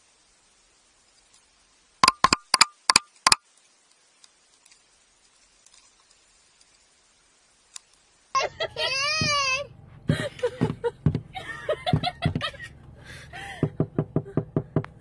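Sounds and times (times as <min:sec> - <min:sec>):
faint ticks: 0:01.1 - 0:07.0, 0:07.7 - 0:08.1.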